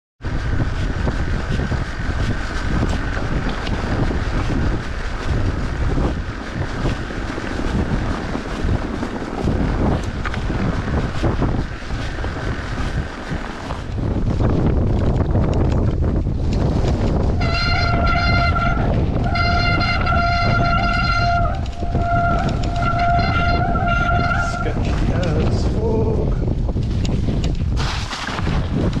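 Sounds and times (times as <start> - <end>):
bike rattling: 0.2 - 29.0
wind on microphone: 0.2 - 29.0
tyres crunching over snow: 0.3 - 29.0
steady high whine: 16.9 - 26.0.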